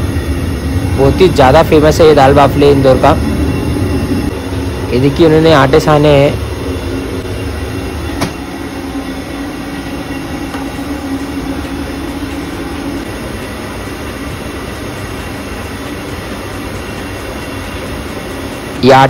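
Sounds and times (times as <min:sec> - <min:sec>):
low hum: 0:00.0 - 0:18.9
machinery rumbling: 0:00.0 - 0:19.0.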